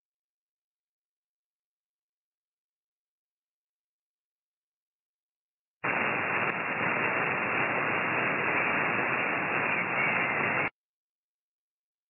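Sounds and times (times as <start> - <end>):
radio static hiss: 5.8 - 10.7.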